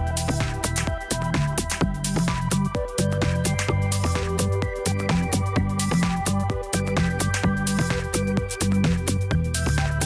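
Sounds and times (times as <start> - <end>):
electronic music with steady beat: 0.0 - 10.0.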